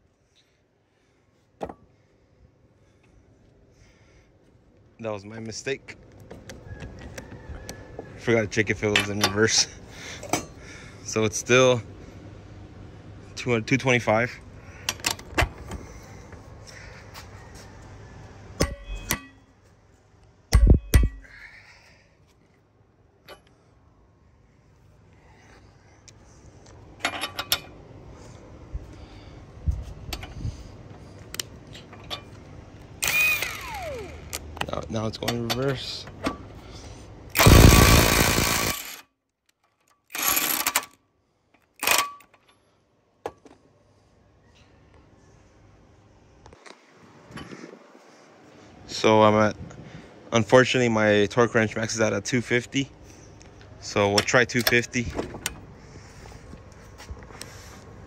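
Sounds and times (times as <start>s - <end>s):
impact wrench hammering: 18.6s - 19.4s, 20.5s - 21.3s, 37.4s - 39.0s
metal tools clanging: 18.6s - 19.5s, 27.0s - 27.8s.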